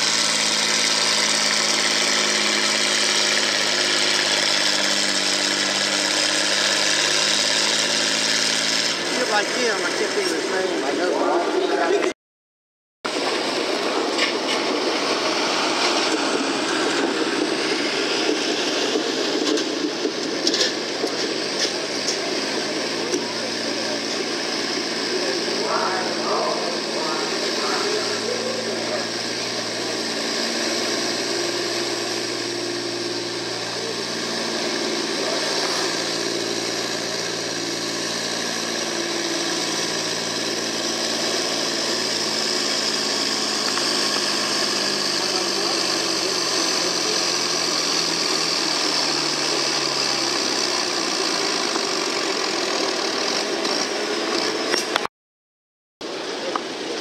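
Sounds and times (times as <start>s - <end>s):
tractor engine under load: 0.0s - 12.1s, 13.1s - 55.1s.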